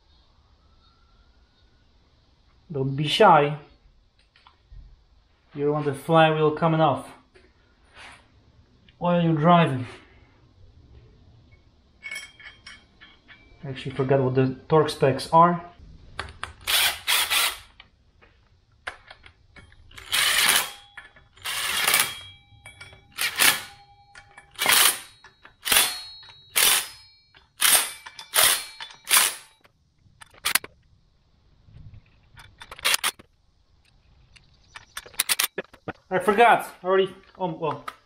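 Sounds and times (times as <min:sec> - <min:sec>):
impact driver spinning bolts: 0:16.4 - 0:17.8, 0:19.9 - 0:30.7.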